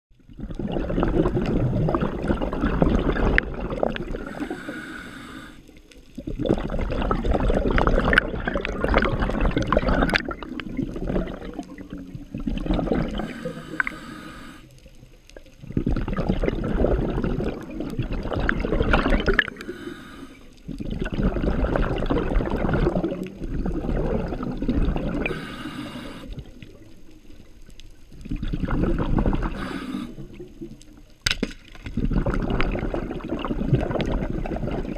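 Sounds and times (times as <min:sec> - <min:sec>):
bubbling underwater exhalations: 0:00.3 - 0:04.9, 0:06.1 - 0:14.1, 0:15.4 - 0:26.9, 0:28.2 - 0:30.8, 0:31.8 - 0:34.9
regulator hissing inhale: 0:04.2 - 0:05.8, 0:13.2 - 0:14.8, 0:19.5 - 0:20.6, 0:25.2 - 0:26.5, 0:29.5 - 0:30.4.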